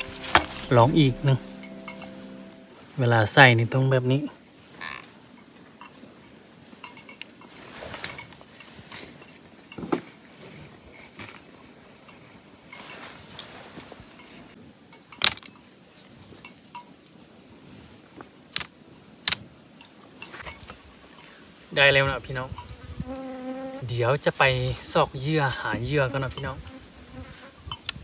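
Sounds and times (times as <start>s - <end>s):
bamboo sticks clicking and tapping: 18.5s - 20.3s.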